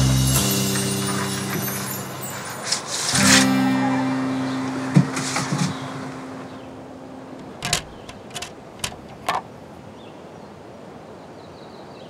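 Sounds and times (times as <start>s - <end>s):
guitar music: 0.0s - 8.3s
vinyl record clicks and taps: 7.4s - 9.5s.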